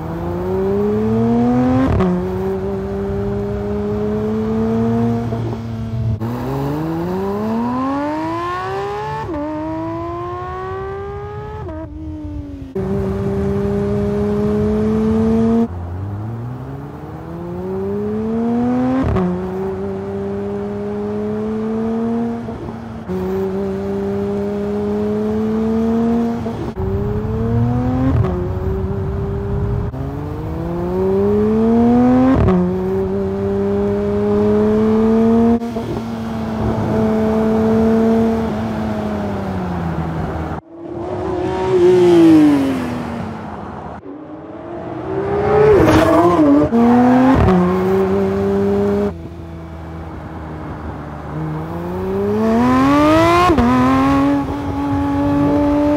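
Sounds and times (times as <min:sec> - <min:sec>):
sports car engine revving: 0:00.0 - 0:55.9
car sweeping past: 0:35.8 - 0:49.1.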